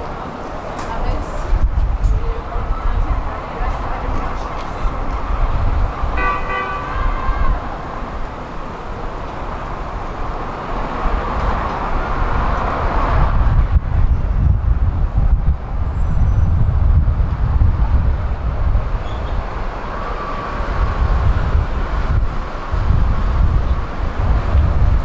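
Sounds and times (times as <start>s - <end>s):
traffic rumble: 0.0s - 25.0s
car horn toot: 6.2s - 7.6s.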